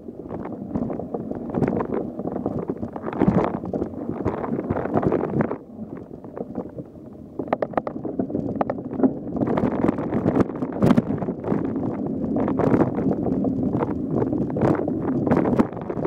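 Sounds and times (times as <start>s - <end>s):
wind on microphone: 0.0s - 16.0s.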